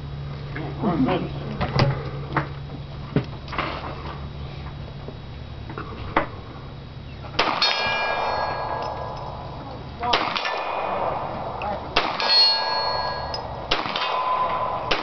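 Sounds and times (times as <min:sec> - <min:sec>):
rifle shots: 0:07.4 - 0:08.9, 0:10.0 - 0:15.0
steel target ringing: 0:07.4 - 0:15.0.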